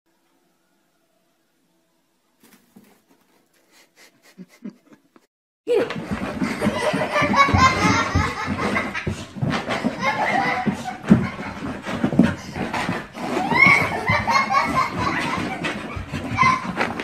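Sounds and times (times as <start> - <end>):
people laughing hard: 3.6 - 5.3, 6.3 - 12.0, 13.5 - 16.8.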